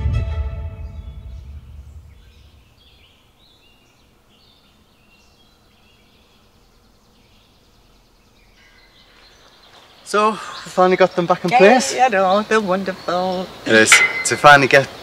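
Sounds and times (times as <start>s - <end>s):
music track: 0.0s - 2.0s
outdoor background noise: 0.0s - 15.0s
birds chirping and singing: 0.7s - 15.0s.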